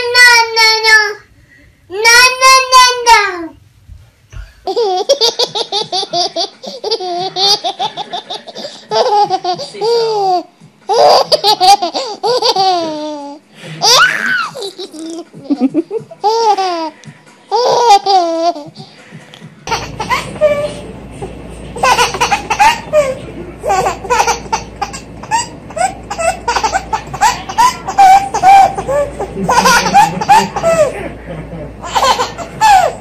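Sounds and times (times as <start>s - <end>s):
baby laughing: 4.6s - 18.8s, 19.7s - 21.0s, 21.8s - 31.2s, 31.8s - 33.0s
baby squealing: 13.8s - 14.8s.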